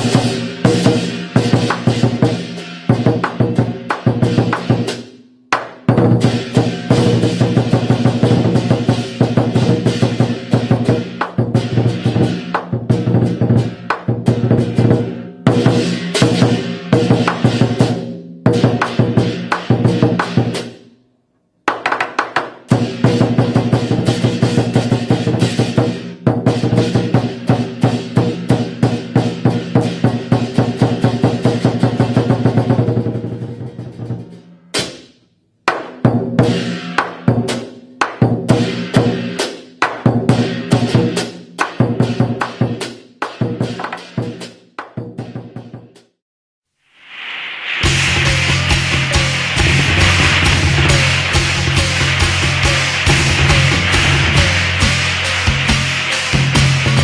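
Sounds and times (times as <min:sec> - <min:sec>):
clashing percussion ringing: 0:00.0 - 0:04.9, 0:47.8 - 0:57.0
drum beaten in fast rhythm: 0:00.0 - 0:20.9, 0:21.7 - 0:46.2, 0:47.8 - 0:57.0.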